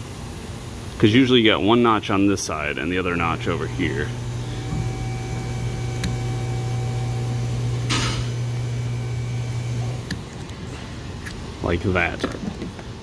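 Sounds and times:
low machine hum: 1.0 - 11.6
faint high whines: 2.7 - 10.2.

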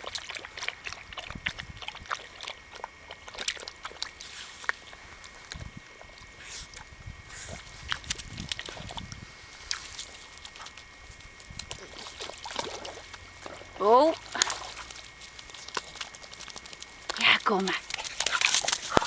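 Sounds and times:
dog splashing in water: 11.6 - 17.2, 17.8 - 19.0.

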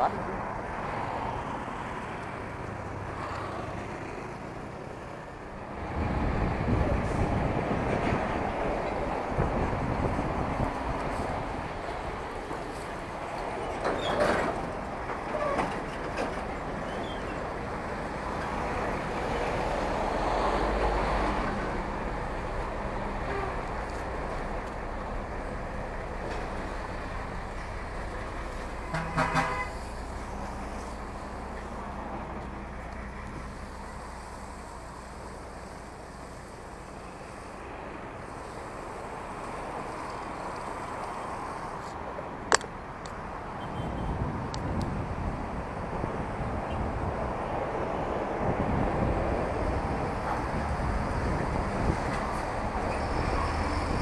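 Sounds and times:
heavy vehicle deep rumble: 0.0 - 54.0
highway traffic rushing past: 0.0 - 54.0
wind noise: 5.7 - 24.6, 43.0 - 54.0
fire truck engine humming: 14.5 - 43.4.

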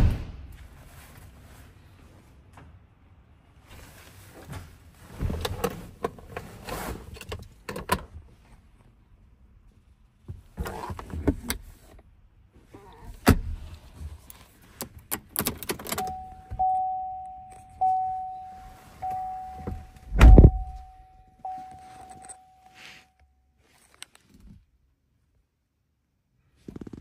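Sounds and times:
heavy thump: 0.0 - 0.7, 19.6 - 21.0
keys jangling: 15.3 - 18.1, 21.5 - 22.8
dashboard warning chime: 15.8 - 23.6.

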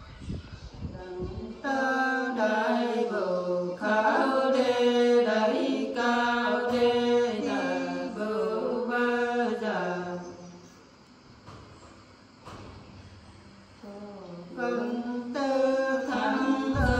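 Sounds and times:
women singing unaccompanied: 0.9 - 10.5, 13.8 - 16.9.

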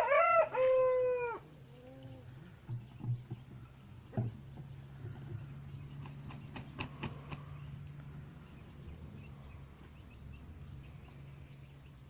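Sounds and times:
rooster wings flapping: 6.0 - 7.6.

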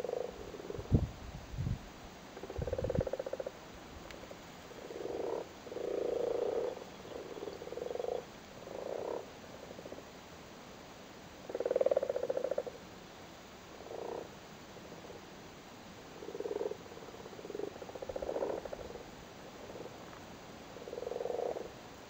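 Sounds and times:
frogs croaking: 0.0 - 1.0, 2.3 - 3.6, 4.7 - 10.2, 11.4 - 12.8, 13.7 - 15.3, 16.1 - 21.8.

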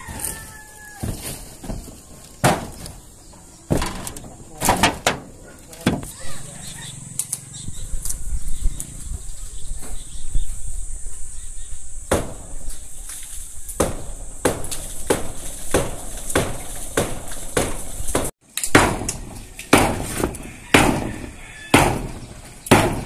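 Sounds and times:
hammer striking wood: 13.8 - 23.0.

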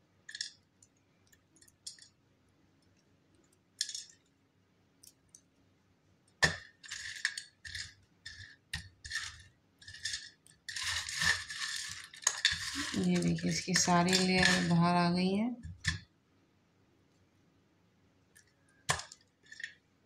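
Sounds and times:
dry flakes rattling on steel plate: 6.6 - 15.0.

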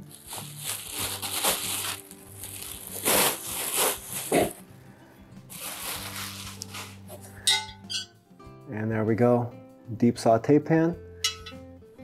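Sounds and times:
packaging rustling: 0.0 - 4.6, 5.5 - 7.2
soft background music: 0.0 - 12.0.

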